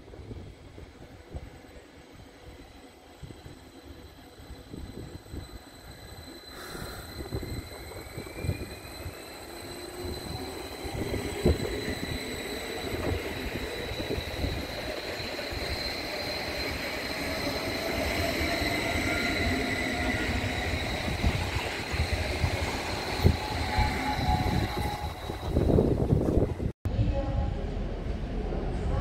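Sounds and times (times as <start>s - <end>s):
electric train whine: 0.0s - 26.7s
low train rumble: 0.0s - 29.0s.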